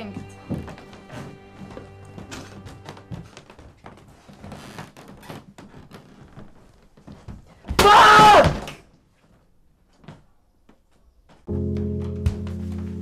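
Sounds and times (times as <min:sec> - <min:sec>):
young man screaming: 0:07.8 - 0:08.6.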